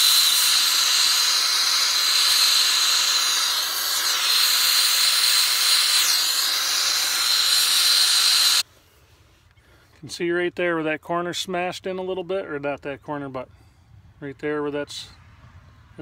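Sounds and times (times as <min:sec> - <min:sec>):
gas torch hissing and whistling: 0:00.0 - 0:08.7.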